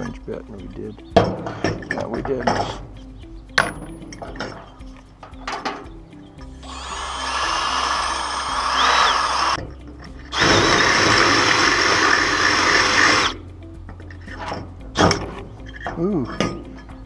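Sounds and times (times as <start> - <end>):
electric drill drilling into metal: 6.6 - 9.6, 10.3 - 13.4.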